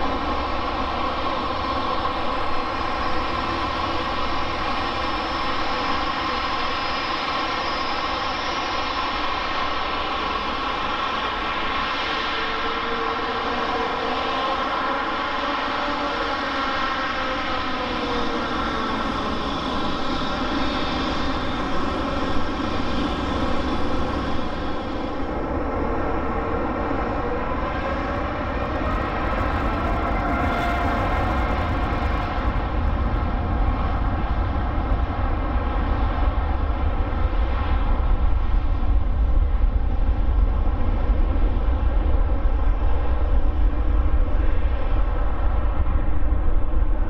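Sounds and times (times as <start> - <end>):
jet engines whining: 17.6 - 35.0.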